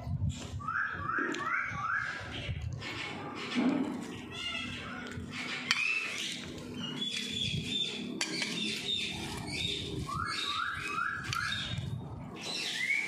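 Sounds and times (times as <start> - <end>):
parakeets chirping and squawking: 1.5 - 13.0.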